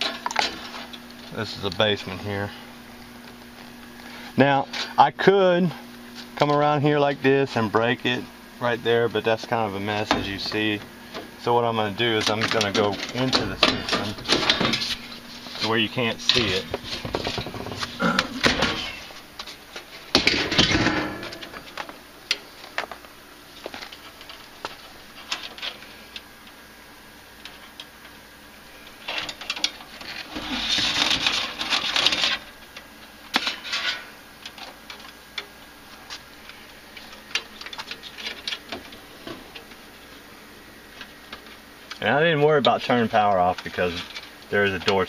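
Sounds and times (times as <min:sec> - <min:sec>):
wire rustling: 0:12.0 - 0:26.2, 0:28.8 - 0:42.0.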